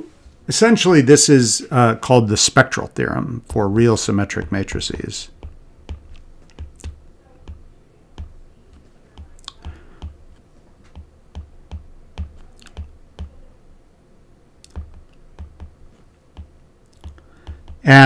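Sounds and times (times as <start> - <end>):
stylus clicking on glass screen: 5.3 - 10.2, 14.6 - 17.8.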